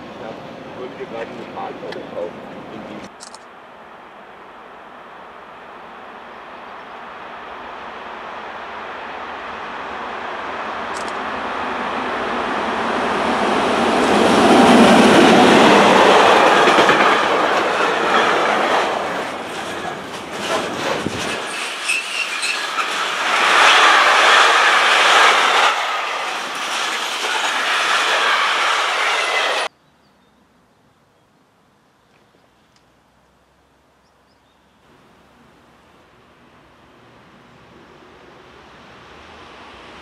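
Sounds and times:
train rumble: 0.0 - 3.1, 3.9 - 29.7
wheels clattering over rail joints: 14.0 - 29.7
wheel squeals: 19.6 - 24.5.

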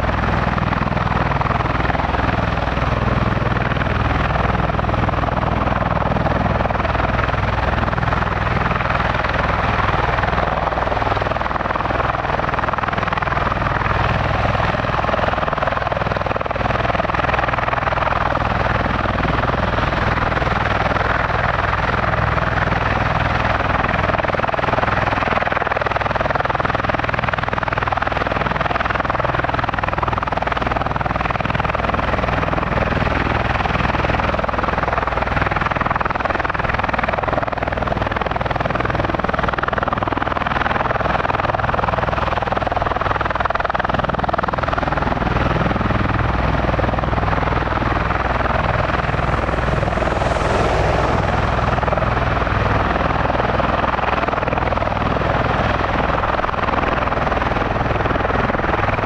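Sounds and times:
tiltrotor aircraft rushing noise: 42.1 - 59.0.

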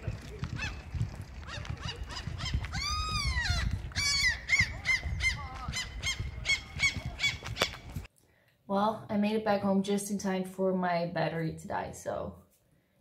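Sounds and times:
gulls calling: 0.0 - 8.1.

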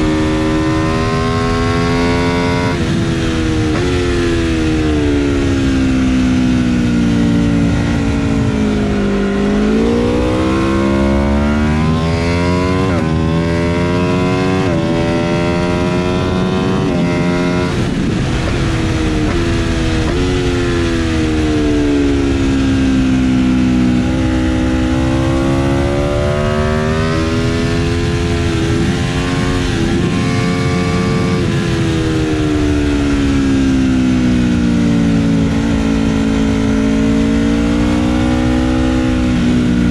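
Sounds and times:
wind rush: 0.0 - 37.6
motorcycle engine revving: 0.0 - 39.9.

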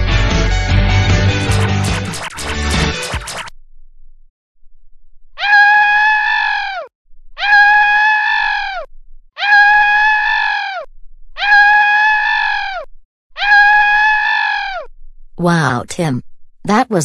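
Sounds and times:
cartoon crying wail: 5.4 - 14.9.

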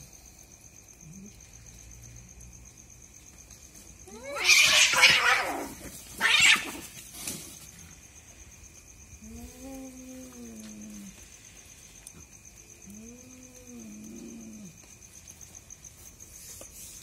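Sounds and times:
cats fighting: 3.7 - 8.0.

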